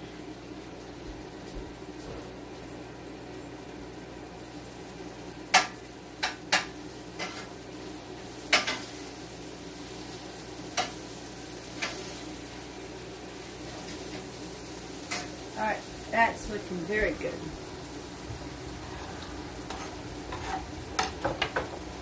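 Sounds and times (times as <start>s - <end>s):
frying sizzle: 0.0s - 22.0s.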